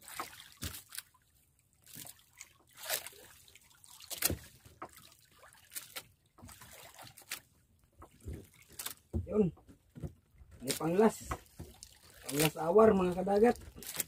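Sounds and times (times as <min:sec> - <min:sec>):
water splashing and trickling: 0:00.0 - 0:14.0.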